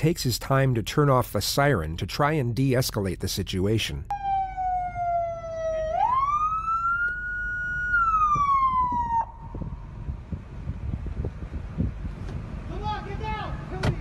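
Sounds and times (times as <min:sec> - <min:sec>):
police siren wailing: 0:04.1 - 0:09.9.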